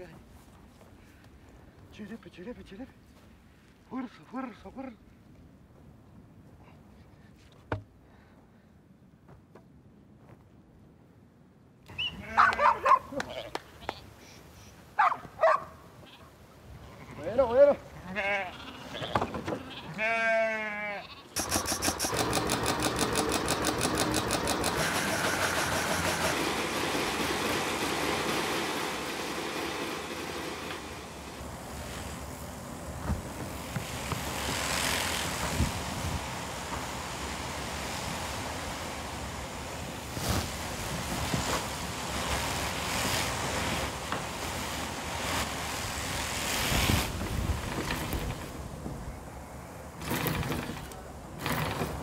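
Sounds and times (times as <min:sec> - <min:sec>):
sheep bleating: 0:12.1 - 0:14.0, 0:16.8 - 0:21.4
shearing machine buzzing: 0:21.4 - 0:48.5.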